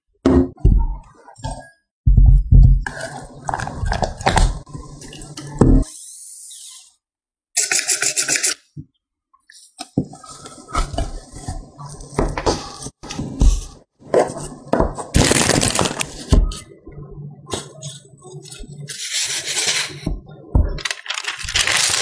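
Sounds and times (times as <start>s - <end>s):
plastic gloves crinkling: 15.1s - 16.3s, 20.7s - 22.0s.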